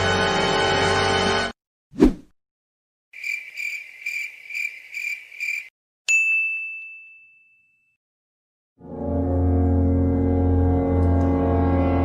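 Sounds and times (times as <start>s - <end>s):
bright bell ding: 6.1s - 8.0s.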